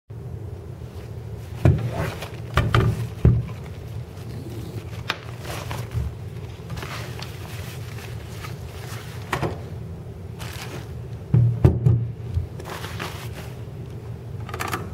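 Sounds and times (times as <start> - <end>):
steady low hum: 0.1 - 14.9
nylon bag rustling: 1.0 - 9.6, 10.3 - 11.2, 12.6 - 13.7.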